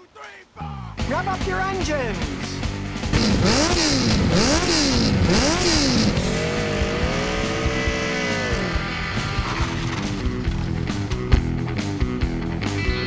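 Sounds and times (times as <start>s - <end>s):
motorcycle engine revving and idling: 2.9s - 11.5s.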